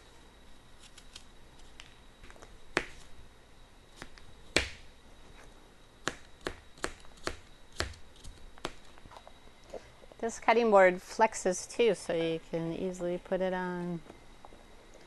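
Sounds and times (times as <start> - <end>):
knife chopping on plastic board: 2.8 - 3.0, 6.0 - 8.0.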